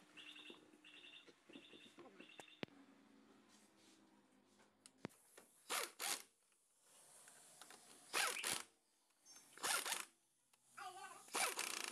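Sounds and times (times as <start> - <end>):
impact wrench bursts: 5.7 - 6.3, 8.1 - 8.7, 9.6 - 10.1, 11.3 - 11.9.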